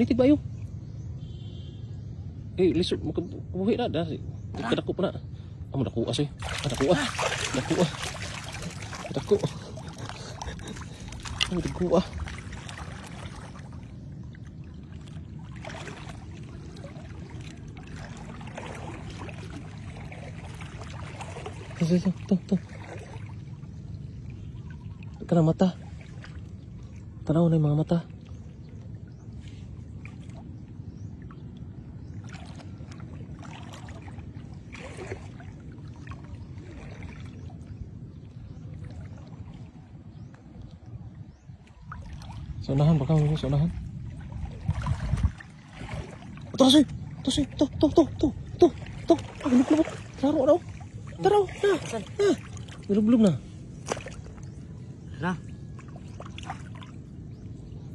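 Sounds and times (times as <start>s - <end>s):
water sloshing around wading legs: 4.3s - 57.9s
low rumble: 28.0s - 57.9s.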